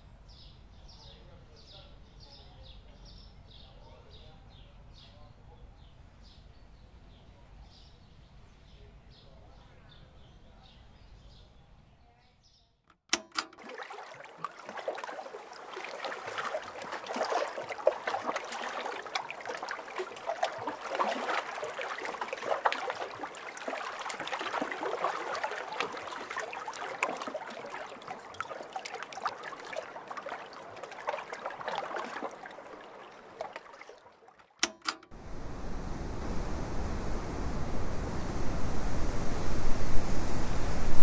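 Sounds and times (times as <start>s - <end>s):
small water splashes: 13.1s - 37.9s
water lapping and trickling: 13.1s - 41.0s.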